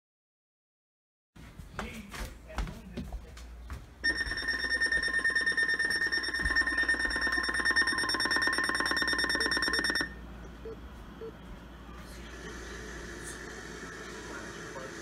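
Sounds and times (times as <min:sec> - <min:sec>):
high-pitched electronic alert tone: 0:04.0 - 0:10.2.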